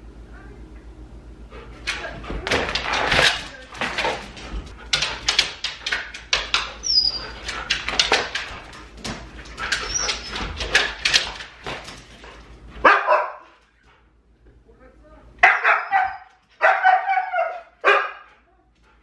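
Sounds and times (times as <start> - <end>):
dog claws scratching a door: 1.8 - 12.4
dog whining: 6.8 - 7.4, 9.8 - 10.6
dog barking: 12.8 - 13.5, 15.4 - 18.4.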